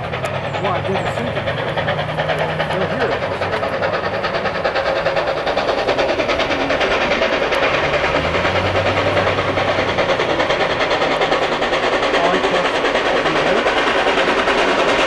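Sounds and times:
steam locomotive exhaust beat: 0.0s - 15.0s.

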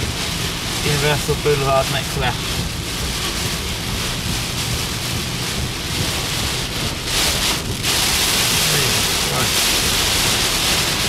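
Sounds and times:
heavy rain on car roof: 0.0s - 11.0s
tyres hissing through water: 5.5s - 11.0s.

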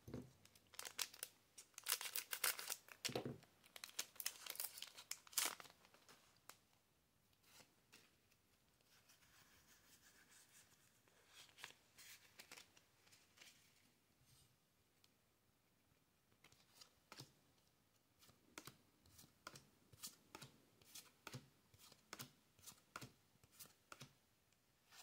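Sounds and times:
foil wrapper crinkling and tearing: 0.7s - 3.1s, 3.8s - 6.0s.

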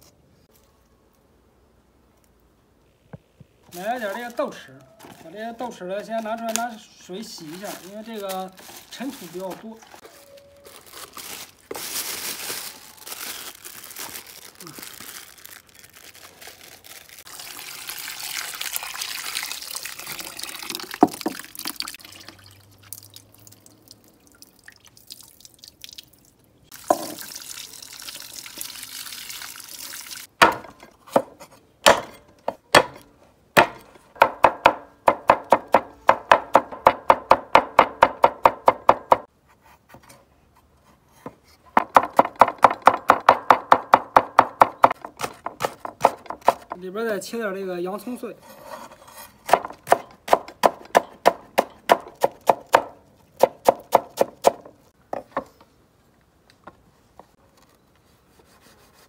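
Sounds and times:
tap water running into bowl: 17.3s - 23.7s, 26.7s - 30.3s
cleaver chopping on wooden board: 30.4s - 33.0s, 33.6s - 39.2s, 41.8s - 46.7s, 49.5s - 54.6s.

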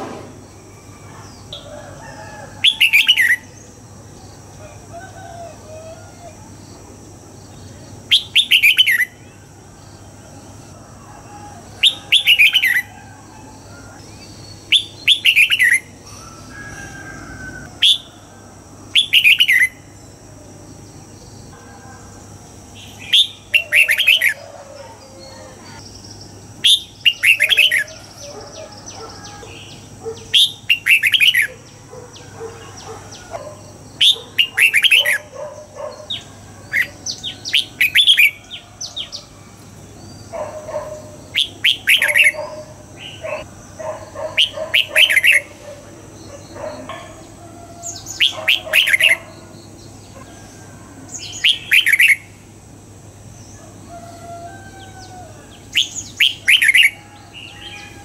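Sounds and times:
bird singing whistled phrases: 26.7s - 28.1s, 55.8s - 57.0s.

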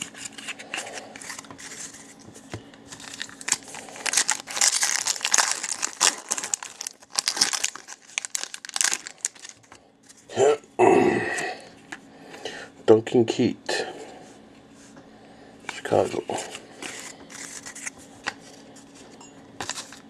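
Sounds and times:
cards being handled: 0.0s - 10.3s, 15.7s - 20.0s
card pack wrapper crackling: 2.9s - 9.7s, 16.8s - 18.4s, 19.6s - 20.0s.

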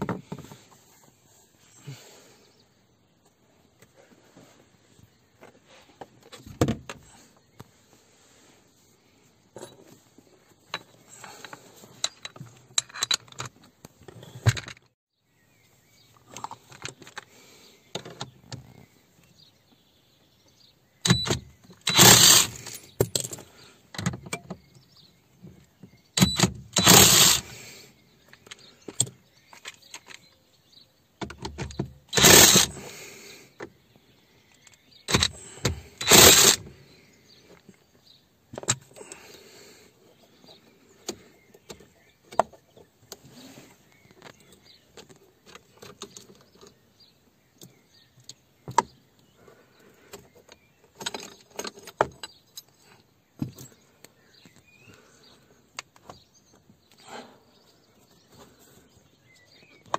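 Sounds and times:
metal tools clinking and rattling: 10.7s - 13.6s
socket ratchet wrench clicking: 36.0s - 36.6s.

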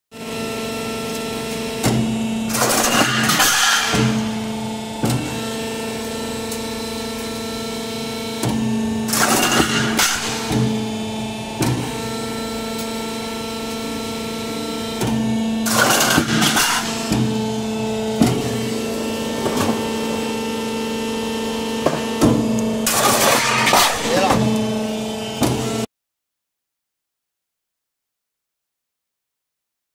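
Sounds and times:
roll forming machine humming: 0.2s - 25.9s.

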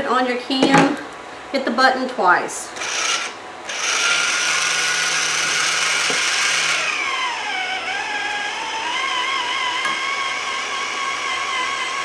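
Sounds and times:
electric can opener motor whine: 2.8s - 12.0s.

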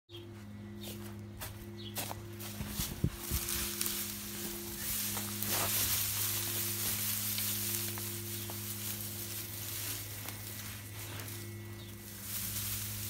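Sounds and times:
low hum: 0.1s - 13.0s
straw rustling and crackling: 0.9s - 13.0s.

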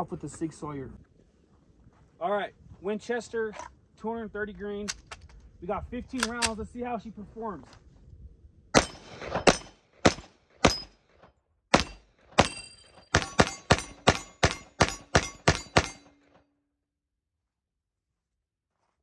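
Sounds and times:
pistol shots: 8.8s - 11.0s, 11.7s - 16.1s.

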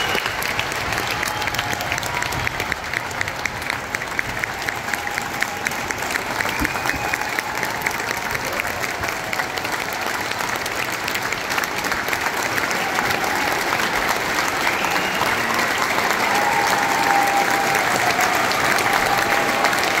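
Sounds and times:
audience applauding: 0.0s - 20.0s.

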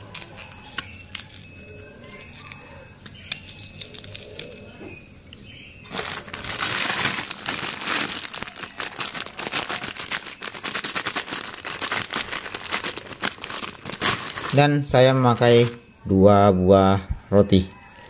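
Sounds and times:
plastic bag crinkling: 0.0s - 4.7s, 5.8s - 14.7s.

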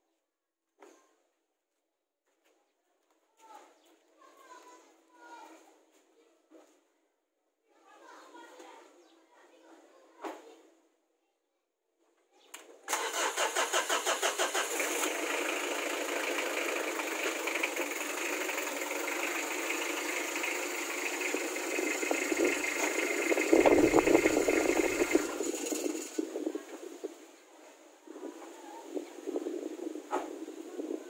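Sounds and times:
engine starter cranking: 12.9s - 26.2s
car engine running: 14.8s - 26.1s.

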